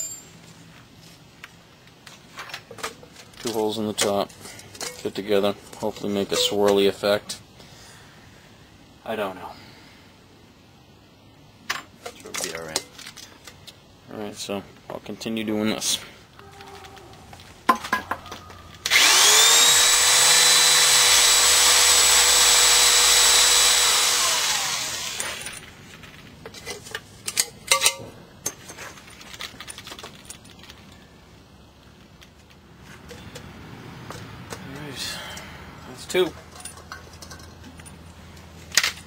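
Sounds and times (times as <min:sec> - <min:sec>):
power drill whine: 0:18.8 - 0:25.5.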